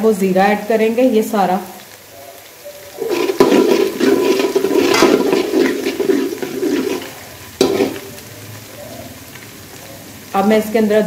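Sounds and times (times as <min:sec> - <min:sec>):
oil sizzling: 0:00.8 - 0:11.0
metal spatula scraping a pot: 0:03.0 - 0:08.3.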